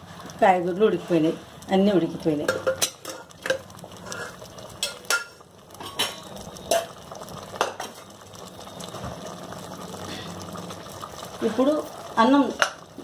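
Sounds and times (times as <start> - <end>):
metal ladle knocking on pot: 2.4 - 3.6.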